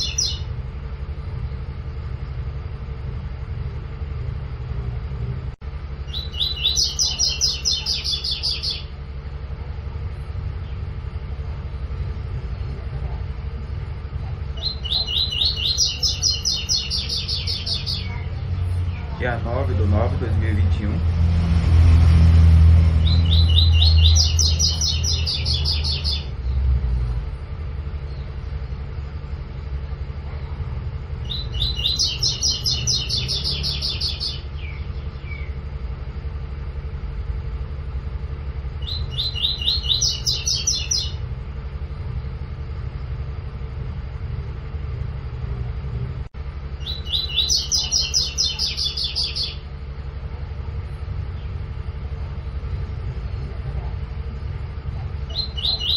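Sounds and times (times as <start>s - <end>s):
bird singing high clear notes: 0.0s - 0.5s, 6.0s - 9.0s, 14.6s - 19.6s, 31.2s - 35.6s, 38.8s - 41.2s, 46.8s - 49.6s, 55.3s - 55.9s
steady low rumble: 0.0s - 55.9s.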